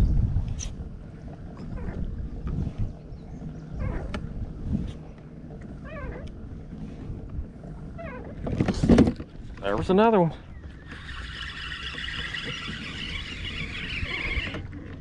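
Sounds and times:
wind on microphone: 0.0 - 9.8, 10.4 - 15.0
water rumbling against hull: 0.0 - 15.0
short wavering squeaks: 10.7 - 14.8.

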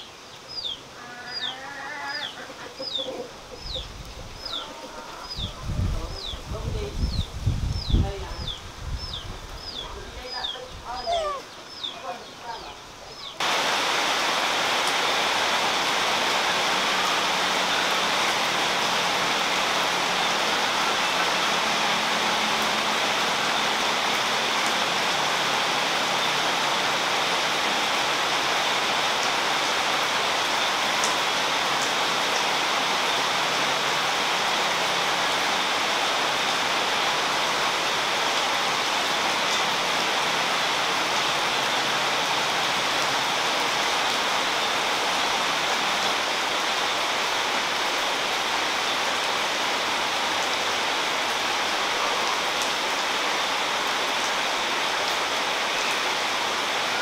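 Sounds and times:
steady hiss: 6.0 - 21.4.

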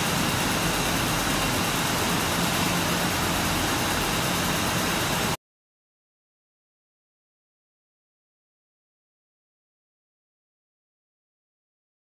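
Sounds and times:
machinery hiss and hum: 0.0 - 5.4.

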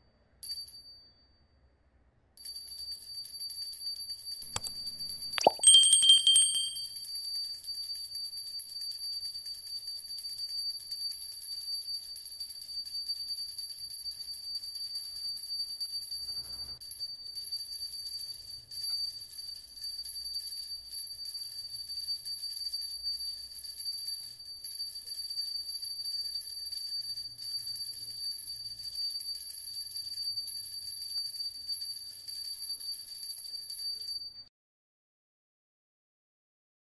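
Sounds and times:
high-pitched ringing tone: 4.5 - 7.3.

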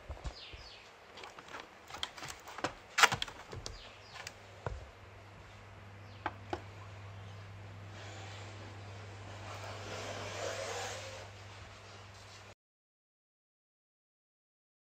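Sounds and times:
steady low hum: 0.0 - 12.6
plastic shell crinkling and clicking: 1.2 - 4.4.

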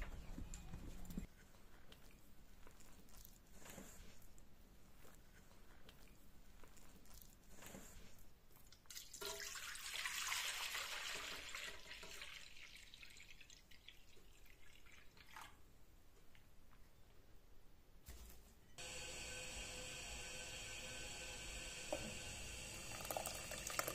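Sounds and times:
milk pouring into a metal pot: 8.8 - 15.6, 18.8 - 23.9.

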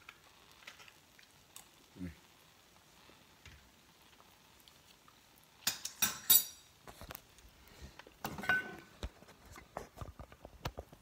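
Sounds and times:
dishes clinking: 5.6 - 6.7, 8.2 - 8.9
plate clattering on stone counter: 5.7 - 6.6, 8.2 - 9.0.

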